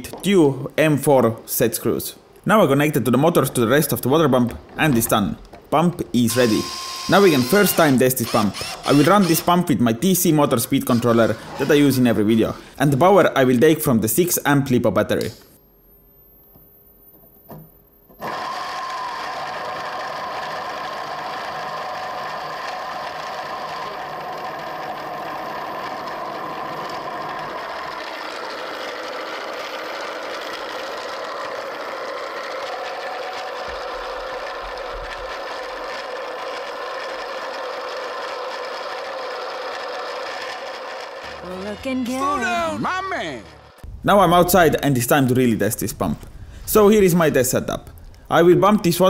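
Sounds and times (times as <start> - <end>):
gear whirr: 6.3 - 9.6, 10.5 - 12.8, 18.2 - 43.9
electric motors whining: 6.3 - 9.7, 10.5 - 12.8, 18.2 - 43.9.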